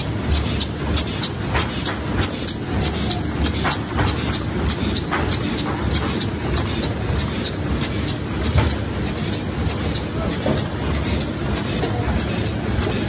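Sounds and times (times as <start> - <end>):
even mechanical clicking: 0.0 - 13.0
laminating machine running: 0.0 - 13.0.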